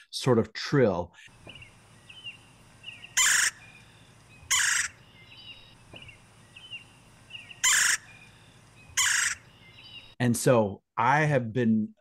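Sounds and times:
faint bird chirps: 1.3s - 10.2s
woodpecker trill calls: 1.3s - 10.2s.

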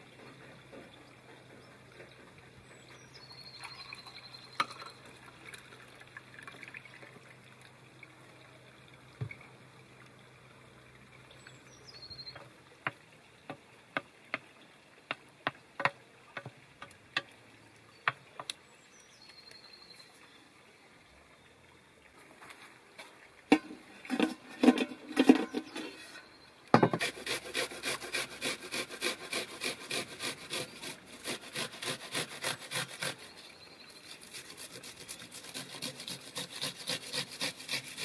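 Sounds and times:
bird chirping with trill: 2.7s - 5.1s, 11.4s - 12.4s
wooden spoon scraping pan: 23.5s - 27.2s.

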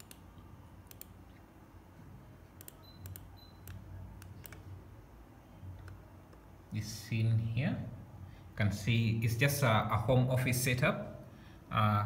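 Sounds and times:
mouse buttons clicking: 0.0s - 0.2s, 0.8s - 1.4s, 2.6s - 4.7s
faint low hum: 0.0s - 12.0s.

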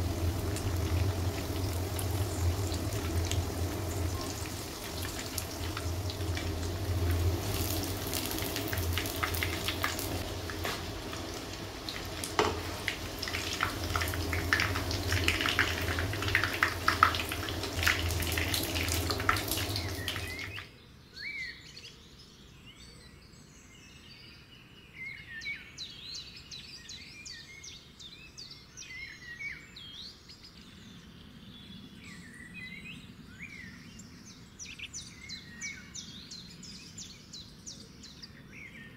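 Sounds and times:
patties sizzling in hot oil: 0.0s - 20.6s
birds chirping: 0.0s - 21.6s.

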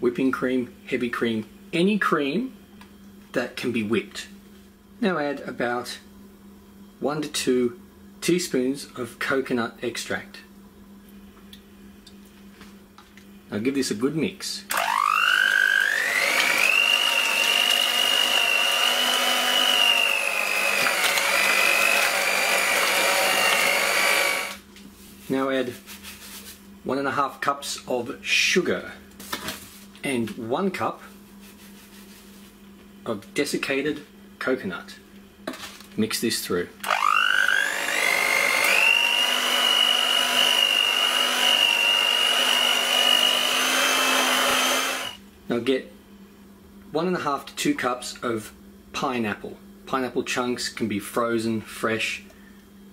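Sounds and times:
electric mixer whining: 14.7s - 24.6s, 36.8s - 45.2s.

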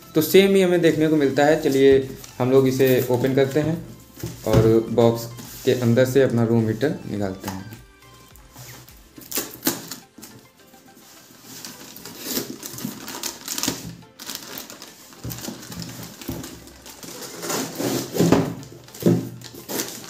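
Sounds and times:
background music: 0.0s - 20.0s
plastic bag rustling: 0.1s - 20.0s
cardboard scraping and tearing: 10.9s - 20.0s.

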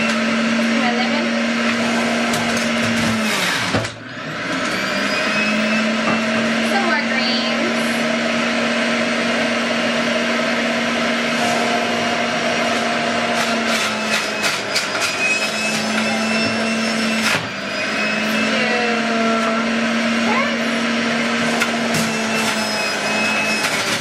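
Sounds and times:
juicer motor grinding whir: 0.0s - 24.0s
clicks and rattles in juicer: 13.3s - 16.0s.

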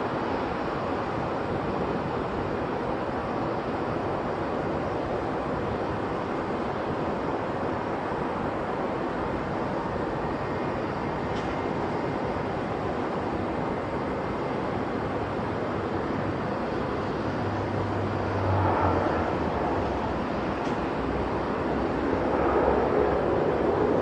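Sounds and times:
wind buffeting microphone: 14.8s - 24.0s
distant airliner rushing roar: 15.4s - 24.0s.

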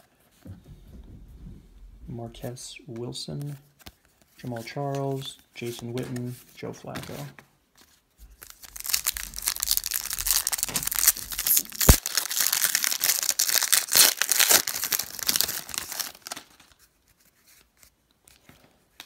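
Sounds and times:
foil wrapper crinkling and tearing: 8.3s - 16.8s.

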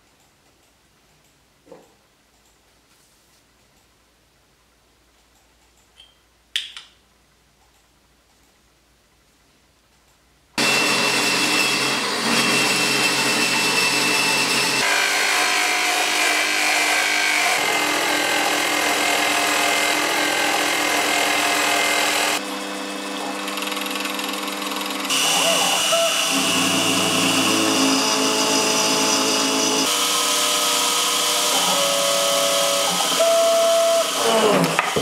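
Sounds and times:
mill spindle whine: 10.6s - 34.9s
harsh scraping of metal cutting: 10.6s - 35.0s.

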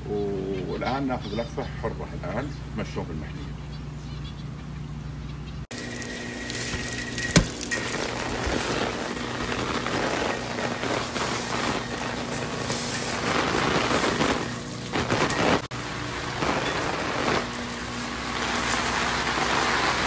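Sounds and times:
rain on umbrella and paving: 5.7s - 20.0s.

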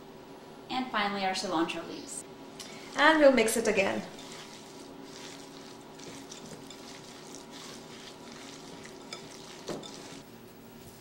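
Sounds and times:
hands squishing raw meat mixture: 4.1s - 10.2s.

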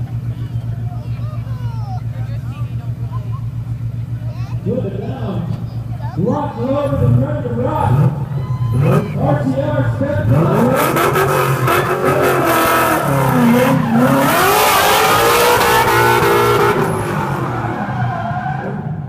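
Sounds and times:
car engine revving hard: 6.8s - 19.0s.

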